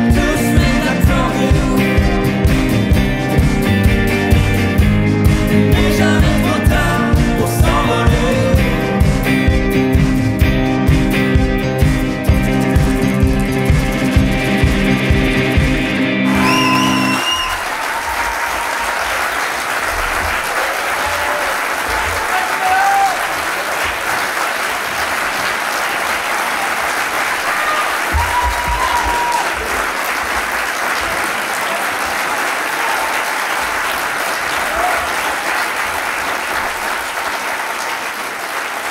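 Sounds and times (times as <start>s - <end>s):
guitar and keyboard chord ringing: 0.0s - 17.2s
audience applauding: 12.4s - 38.9s
whistles from audience: 16.3s - 18.2s.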